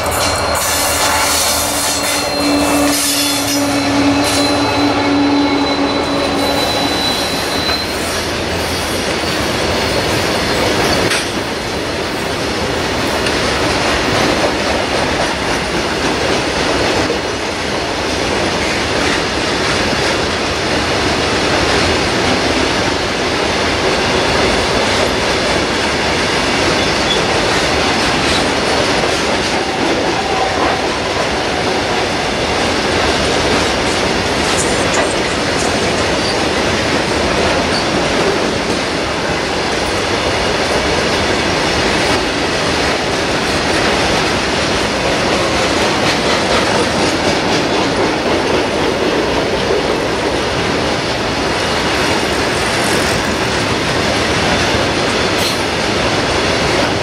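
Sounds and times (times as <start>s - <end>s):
diesel locomotive engine droning: 0.0s - 57.0s
train wagons rolling on rails: 0.0s - 57.0s.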